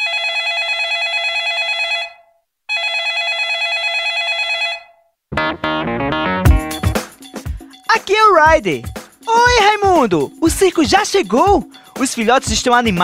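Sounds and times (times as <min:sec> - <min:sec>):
warbling telephone ringtone: 0:00.0 - 0:05.0.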